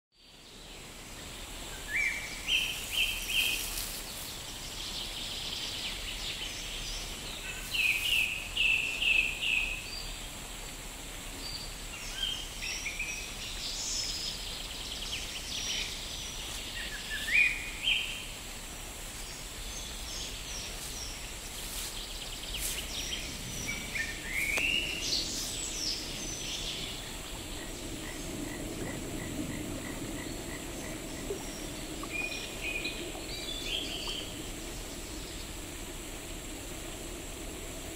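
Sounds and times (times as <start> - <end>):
outdoor background hiss: 0.2 - 37.9
soft low rushing noise: 14.2 - 37.9
birds chirping and trilling: 19.6 - 35.6.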